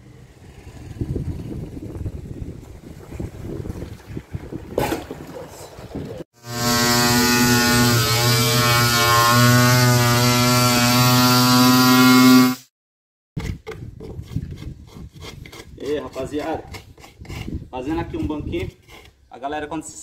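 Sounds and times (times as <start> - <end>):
angle grinder sanding wood: 6.4 - 12.6
light scrapes and knocks: 13.4 - 19.2.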